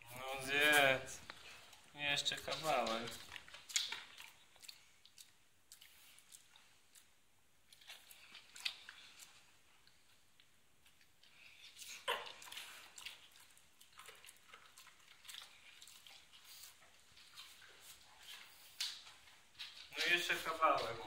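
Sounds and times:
dog chewing carrot: 0.0 - 10.2, 10.8 - 21.0.

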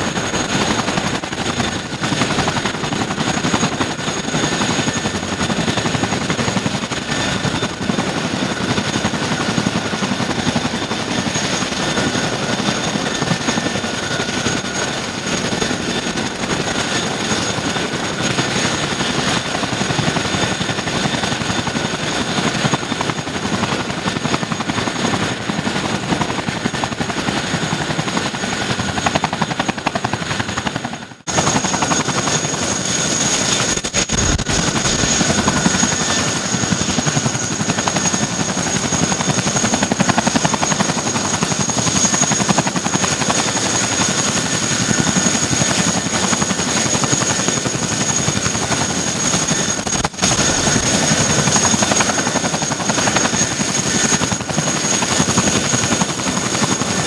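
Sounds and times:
helicopter rotor chop: 0.0 - 57.0
high turbine whine: 31.3 - 57.0.

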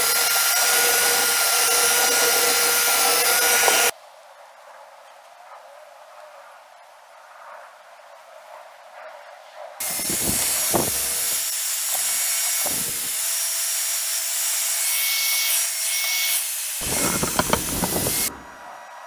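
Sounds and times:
power tool rasping on steel: 0.0 - 3.9, 9.8 - 18.4
knocks: 16.8 - 18.4.

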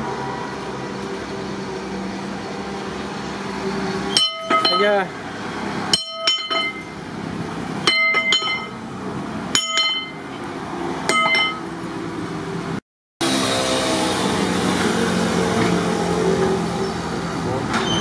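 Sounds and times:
metal shaft knocks ringing: 4.1 - 5.0, 5.9 - 7.0, 7.8 - 8.8, 9.5 - 10.3, 11.1 - 11.7.

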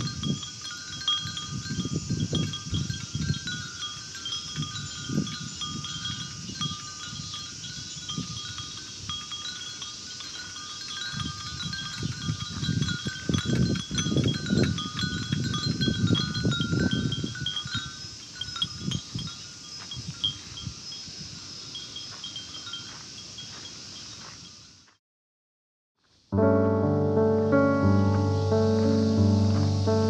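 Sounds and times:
wind rumbling on microphone: 0.0 - 23.6
wind chimes tinkling: 0.0 - 24.9.

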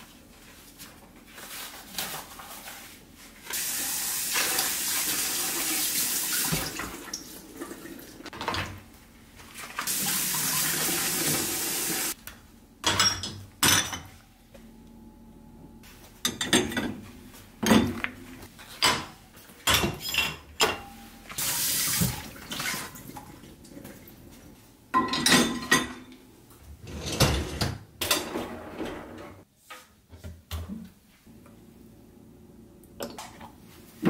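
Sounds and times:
running tap water: 3.5 - 8.3, 9.8 - 12.2, 21.4 - 23.0
dishes clattering and knocking: 12.8 - 14.2, 16.2 - 21.0, 24.9 - 26.1, 26.9 - 29.4.

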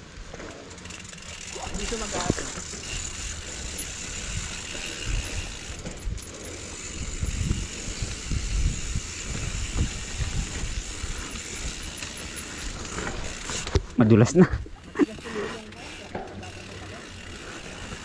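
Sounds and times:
bike wheels thumping over bumps: 0.0 - 14.0
bike rattling: 0.0 - 18.0.

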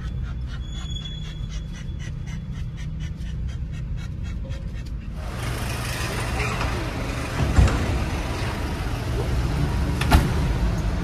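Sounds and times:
dog panting: 0.0 - 5.4
vehicle rumble: 0.0 - 11.0.

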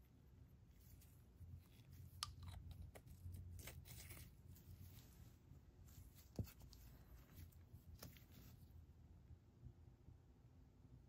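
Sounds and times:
low room hum: 0.0 - 11.0
soft scratching: 0.5 - 8.8.

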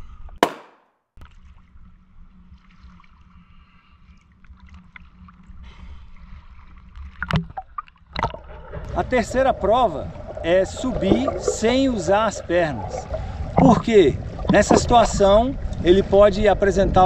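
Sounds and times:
small waves lapping: 8.2 - 17.0
steady low rumble: 8.4 - 17.0.

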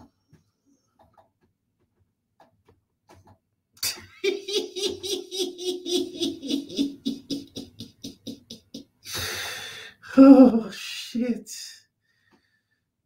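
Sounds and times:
man laughing loudly: 3.8 - 9.0
faint breaths: 9.0 - 10.1, 12.0 - 13.0.

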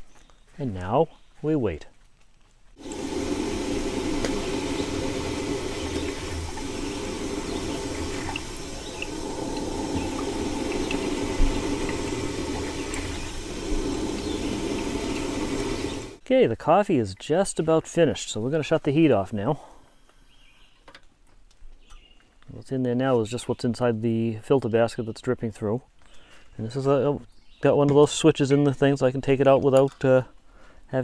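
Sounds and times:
coffee maker water gurgling: 2.8 - 16.2.

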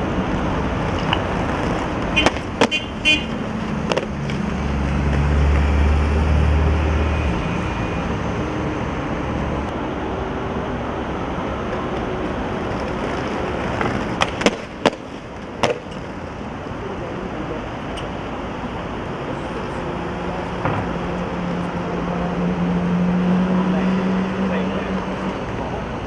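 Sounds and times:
heavy vehicle engine rumbling: 0.0 - 26.0
skateboard wheels on paving stones: 0.8 - 5.6, 12.5 - 16.2
skateboard clacking on ground: 12.7 - 16.1.

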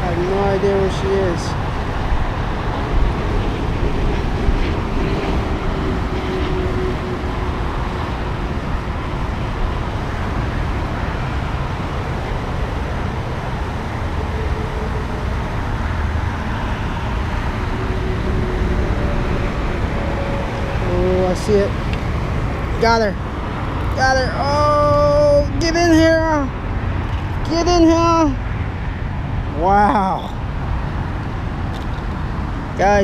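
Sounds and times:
highway traffic noise: 0.0 - 33.0
wind rumbling on microphone: 0.0 - 33.0.

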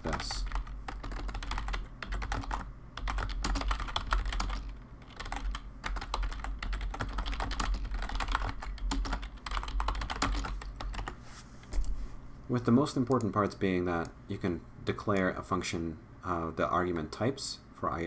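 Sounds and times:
keyboard typing: 0.0 - 11.2.

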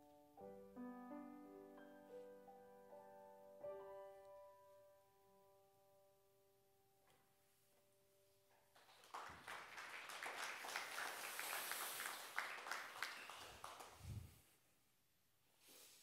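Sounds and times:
congregation applauding: 8.7 - 14.3.

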